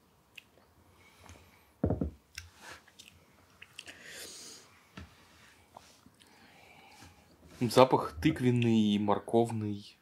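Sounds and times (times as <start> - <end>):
long sniff: 3.8 - 4.7.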